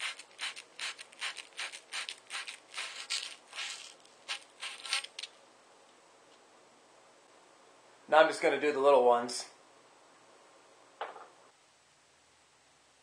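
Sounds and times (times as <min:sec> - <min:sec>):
abrasive cloth scratching pipe: 0:00.0 - 0:05.3.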